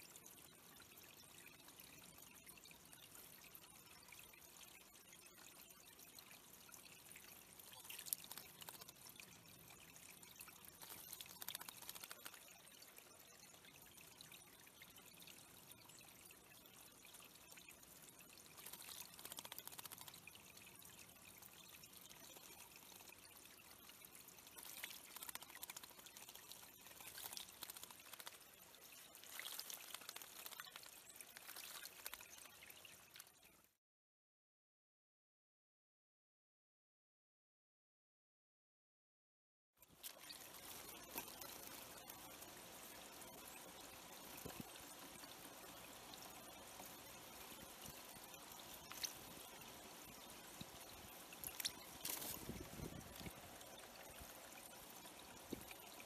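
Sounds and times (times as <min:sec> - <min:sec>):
faint water trickling over stones: 0:00.0 - 0:33.8, 0:39.8 - 0:56.0
bird splashing in water: 0:18.6 - 0:20.0, 0:24.6 - 0:28.4.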